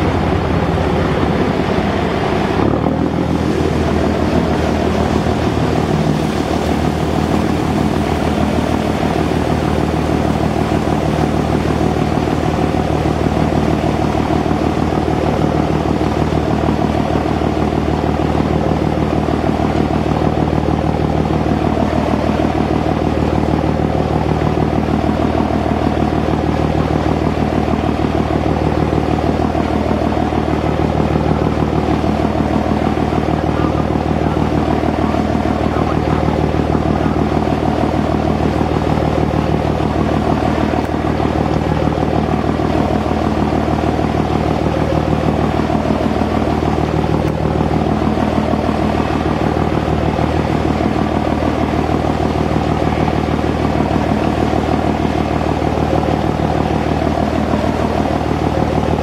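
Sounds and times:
ferry diesel engines droning: 0.0 - 59.0.

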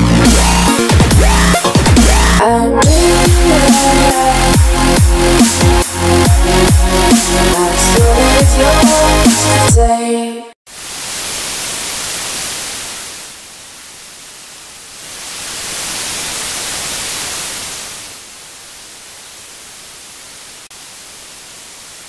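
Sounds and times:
electronic music: 0.0 - 10.3
television static hiss: 10.7 - 22.0.

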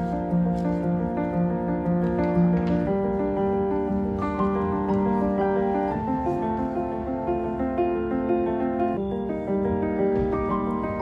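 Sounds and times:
piano background music: 0.0 - 11.0.

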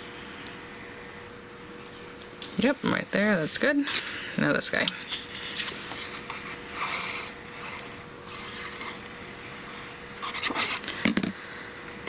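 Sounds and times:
paper rustling and sliding: 5.1 - 9.0, 10.2 - 10.9.

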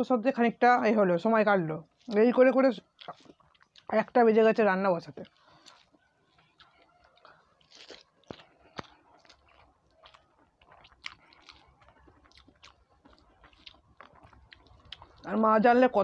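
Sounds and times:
person chewing food: 1.9 - 2.2, 2.8 - 4.2, 5.1 - 15.4
soft mouth smacks and clicks: 3.0 - 4.0, 5.2 - 15.3.

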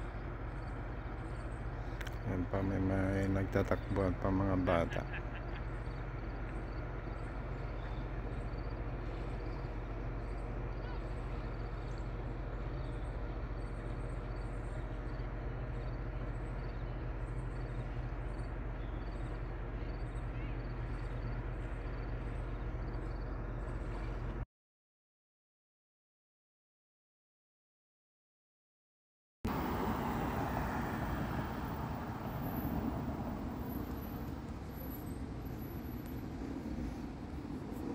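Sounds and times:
steady low hum: 0.0 - 24.4.

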